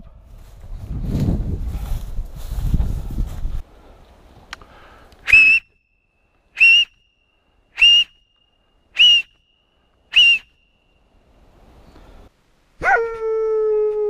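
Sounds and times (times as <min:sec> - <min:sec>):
short high whistle blasts: 0:05.2 - 0:06.0, 0:06.6 - 0:10.8.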